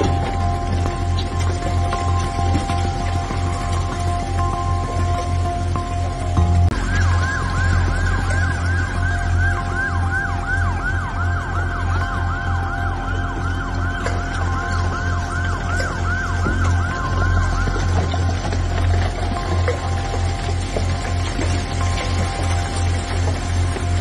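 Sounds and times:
siren yelping: 6.7s - 21.0s.

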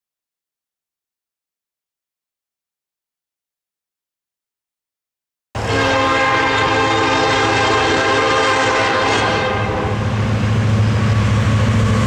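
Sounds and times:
locomotive air horn chord: 5.6s - 10.2s
locomotive rumble: 5.6s - 12.0s.

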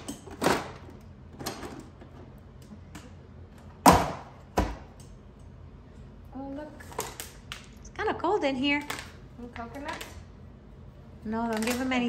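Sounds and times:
knocks in a refrigerator: 3.8s - 4.9s.

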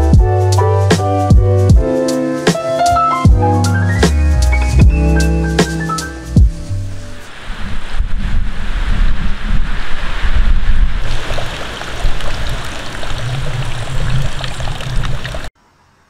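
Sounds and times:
wind buffeting microphone: 6.5s - 15.5s.

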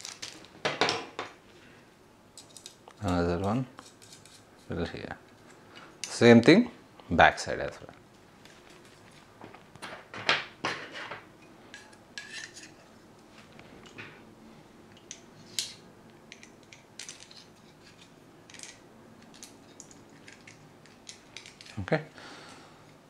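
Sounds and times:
plastic parts clicking and clattering: 0.0s - 1.1s, 15.0s - 21.9s.

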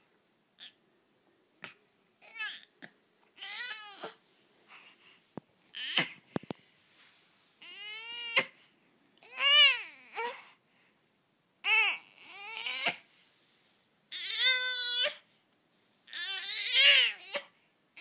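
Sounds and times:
baby crying whiny cries: 2.2s - 2.7s, 3.4s - 4.2s, 5.7s - 6.2s, 7.6s - 8.6s, 9.2s - 10.6s, 11.6s - 13.1s, 14.1s - 15.3s, 16.1s - 18.0s.

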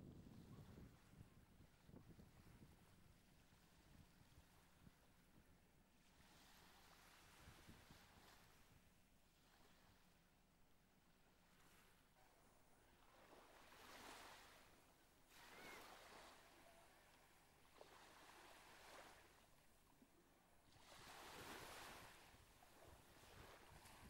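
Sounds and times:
faint waves washing onto beach: 12.9s - 19.6s, 20.7s - 24.0s.

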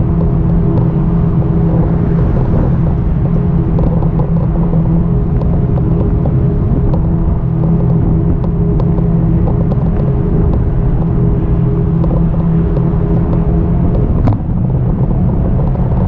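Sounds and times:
rumble of tyres and air: 0.0s - 16.0s.

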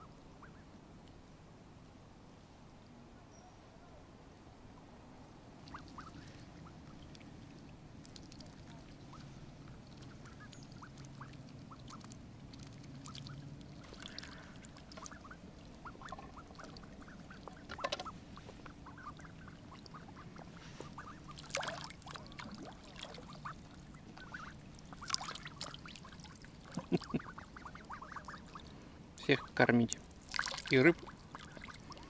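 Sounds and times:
ducklings calling softly: 0.0s - 0.7s, 5.6s - 32.0s
louder short calls or splashes: 5.6s - 7.3s, 8.1s - 29.6s, 30.2s - 32.0s.

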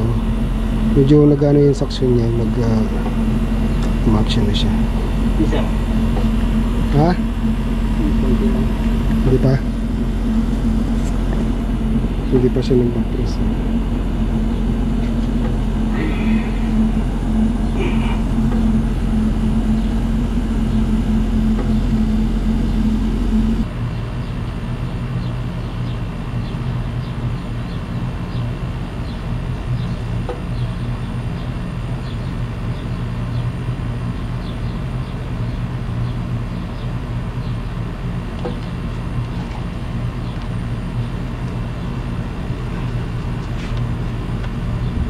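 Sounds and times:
air conditioner compressor humming: 0.0s - 45.0s.

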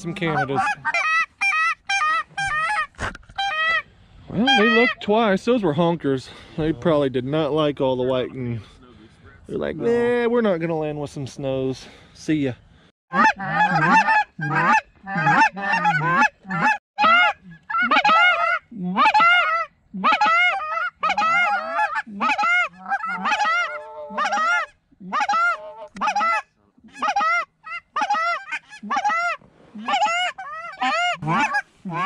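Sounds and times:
goose honking: 0.0s - 3.8s, 4.4s - 5.0s, 13.1s - 32.0s.

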